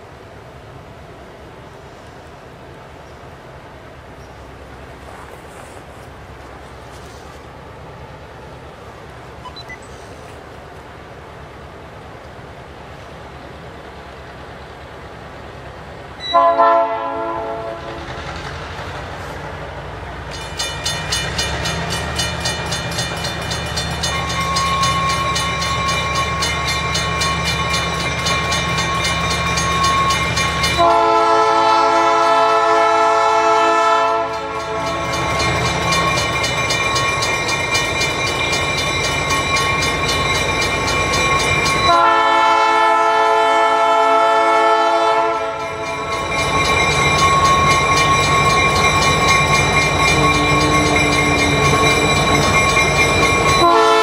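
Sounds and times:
diesel locomotive engine running: 4.5s - 54.0s
locomotive horn blasts: 16.2s - 18.0s, 30.0s - 35.4s, 41.9s - 45.8s, 53.5s - 54.0s.

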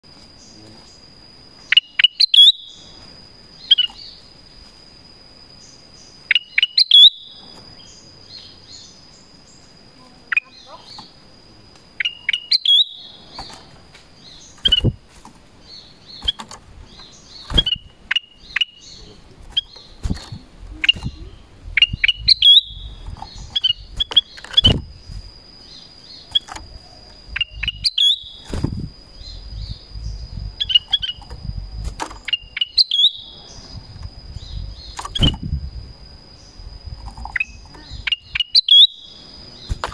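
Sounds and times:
high insect drone: 0.0s - 39.9s
bulbul whistled calls: 1.6s - 2.9s, 5.6s - 9.2s, 12.0s - 13.6s, 15.7s - 24.8s, 25.6s - 28.5s, 29.2s - 31.6s, 32.2s - 35.5s, 37.3s - 39.8s.

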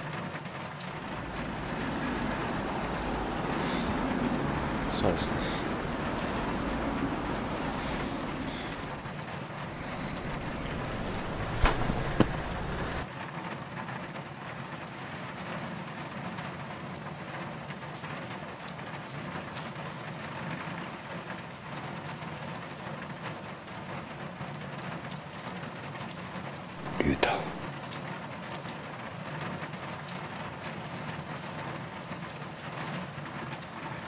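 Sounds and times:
low rumble: 0.9s - 13.0s.

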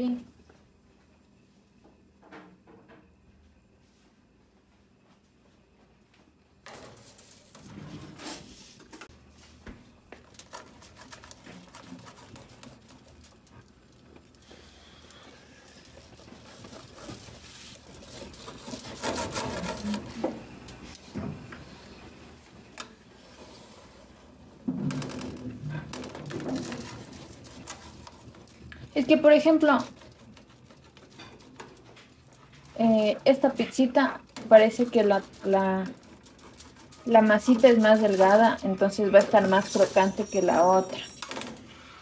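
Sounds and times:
knife scraping through pizza crust: 10.3s - 13.6s, 14.4s - 20.2s, 26.5s - 40.4s.

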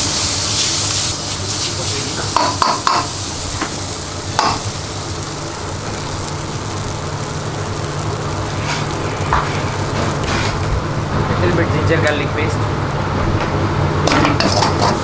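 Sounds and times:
vegetables frying in oil: 0.0s - 13.2s, 13.8s - 15.0s
steady low hum: 1.0s - 14.8s
metal ladle scraping wok: 8.5s - 10.7s.

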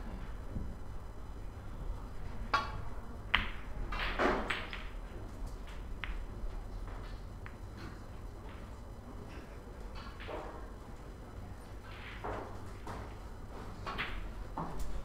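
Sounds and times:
cue striking ball: 2.5s - 5.0s
snooker balls clicking: 2.5s - 8.8s.

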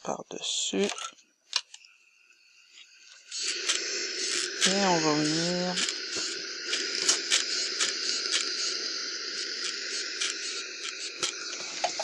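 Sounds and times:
steam iron hissing: 3.1s - 12.0s.

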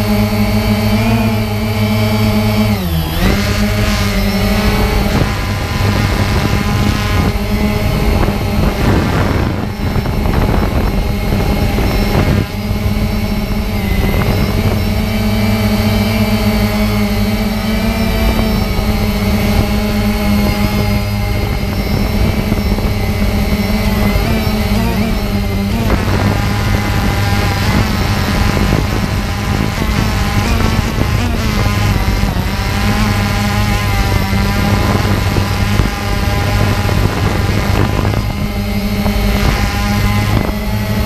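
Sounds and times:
drone propellers buzzing: 0.0s - 41.0s.

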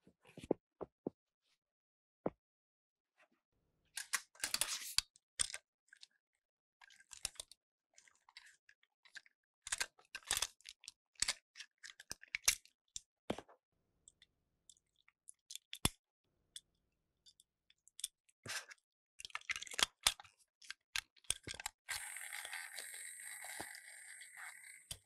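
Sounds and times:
plastic toy clicking and scraping: 4.0s - 5.6s, 19.3s - 25.0s.

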